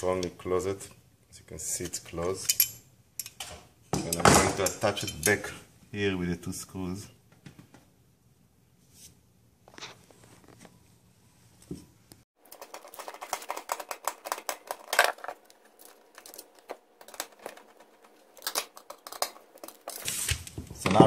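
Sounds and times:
screwdriver clicking and scraping: 0:12.5 - 0:20.2.

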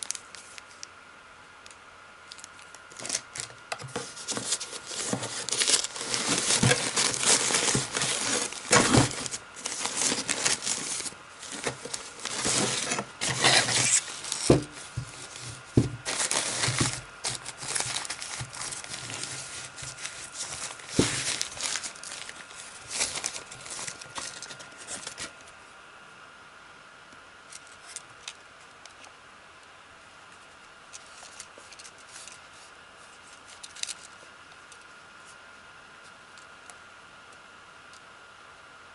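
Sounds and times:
wrapping sheet crinkling: 0:00.0 - 0:00.8, 0:02.3 - 0:25.4
faint steady whine: 0:00.0 - 0:38.9.

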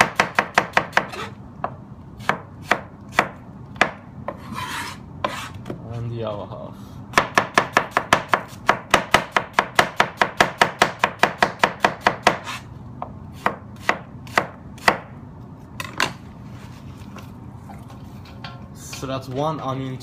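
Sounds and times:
knife slicing onion on cutting board: 0:00.0 - 0:05.8, 0:07.1 - 0:12.7, 0:13.3 - 0:15.1.

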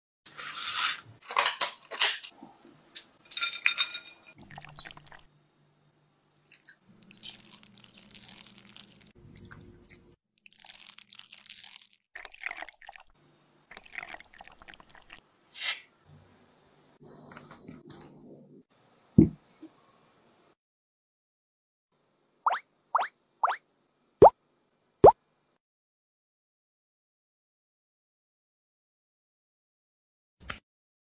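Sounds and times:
thick liquid pouring: 0:04.4 - 0:05.3, 0:06.5 - 0:09.8, 0:10.4 - 0:15.2.

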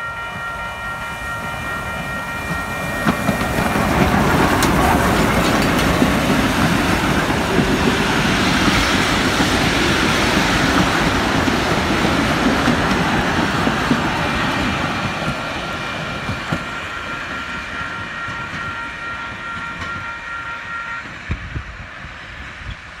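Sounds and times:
high-pitched ringing tone: 0:00.0 - 0:04.0
train wheels on rails: 0:00.0 - 0:23.0.

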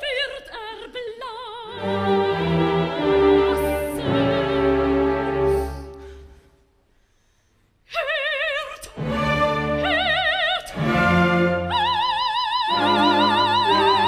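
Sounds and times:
soprano singing: 0:00.0 - 0:06.3, 0:07.9 - 0:14.0
orchestra playing: 0:01.8 - 0:06.3, 0:09.0 - 0:14.0.

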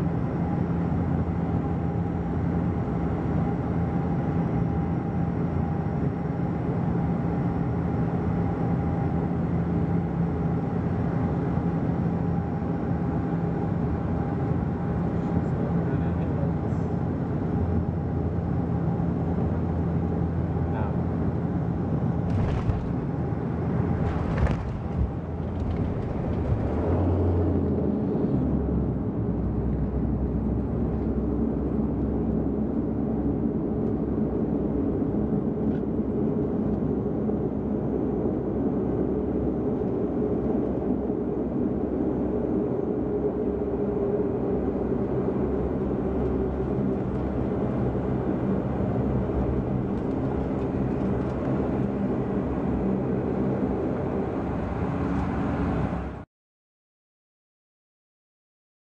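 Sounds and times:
aircraft rolling on runway: 0:00.0 - 0:56.2
propeller drone: 0:00.0 - 0:56.2
thump: 0:22.3 - 0:23.2, 0:24.0 - 0:25.2.

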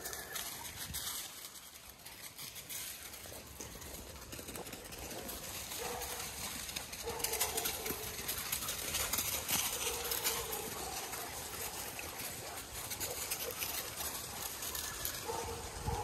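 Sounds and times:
rustling: 0:00.0 - 0:16.0.

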